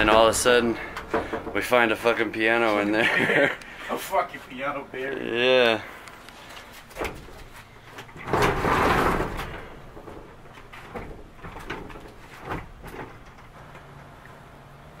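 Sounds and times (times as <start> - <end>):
short knocks: 0.0 - 2.8
piano scraping across floor: 8.2 - 10.1.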